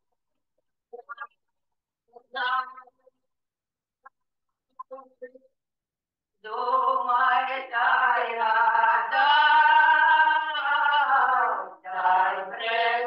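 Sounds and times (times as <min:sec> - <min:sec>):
folk singing with held notes: 0:06.4 - 0:13.0.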